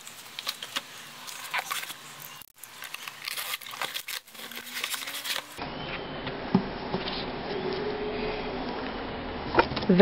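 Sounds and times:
cardboard tearing and crinkling: 0:00.0 - 0:05.6.

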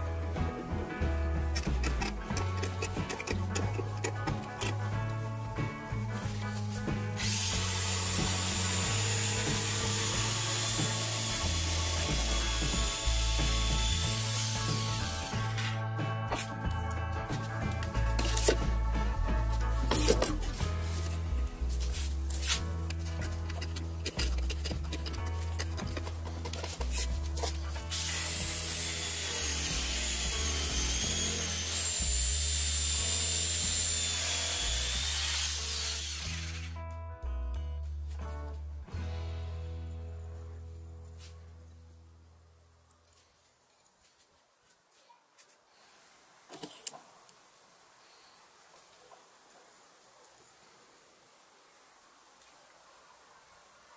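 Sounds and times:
background music: 0:00.0 - 0:42.8
electric jigsaw sawing wood: 0:07.2 - 0:15.5, 0:27.9 - 0:36.7.

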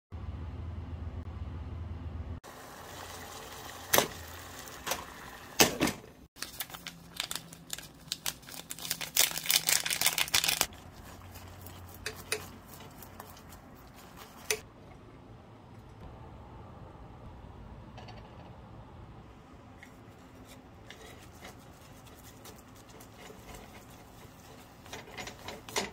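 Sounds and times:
packaging clicks: 0:06.4 - 0:10.7
foil packet crinkling: 0:06.4 - 0:14.2.

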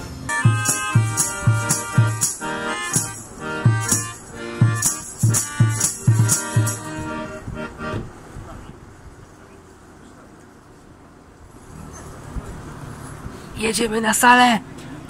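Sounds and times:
accordion: 0:00.0 - 0:08.6
wind instrument: 0:00.2 - 0:08.1
bass drum beat: 0:00.3 - 0:07.1.

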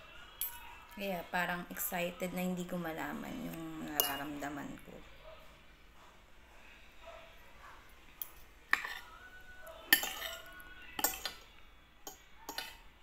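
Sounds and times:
cutlery clinking on plate: 0:04.0 - 0:04.4, 0:08.2 - 0:09.2, 0:09.9 - 0:12.9.

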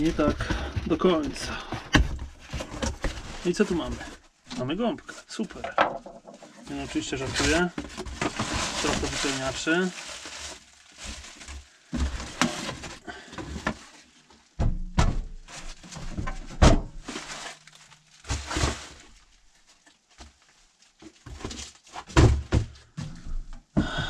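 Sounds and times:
cardboard rustling: 0:00.0 - 0:04.8, 0:05.6 - 0:14.6, 0:15.3 - 0:22.8
thunks on wooden workbench: 0:14.6 - 0:15.3, 0:16.5 - 0:16.9.

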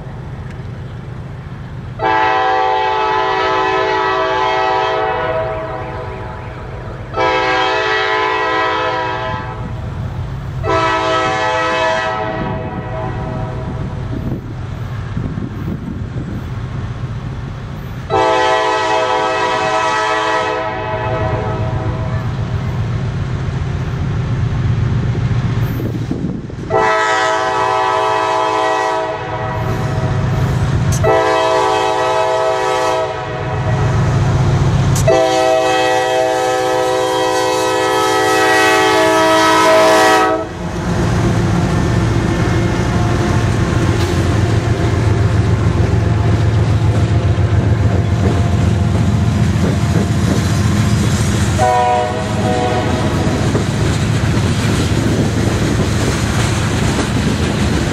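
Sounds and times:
train rumbling on rails: 0:00.0 - 0:57.9
train air horn blasts: 0:02.0 - 0:09.8, 0:10.6 - 0:14.4, 0:18.0 - 0:22.4, 0:26.6 - 0:34.1, 0:34.9 - 0:40.7, 0:51.4 - 0:53.6.

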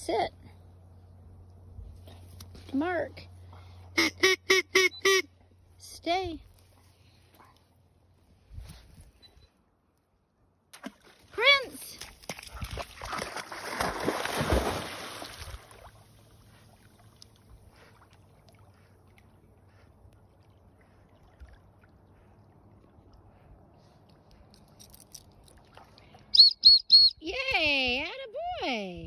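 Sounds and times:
dog splashing into pond: 0:10.7 - 0:19.4
short high-pitched whistle toots: 0:26.3 - 0:27.2.

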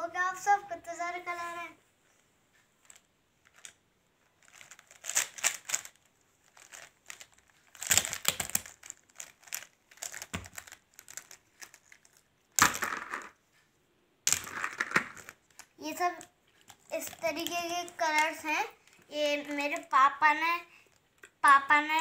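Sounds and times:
plastic pens clicking and rattling: 0:02.8 - 0:03.8, 0:04.4 - 0:13.4, 0:14.3 - 0:20.0.

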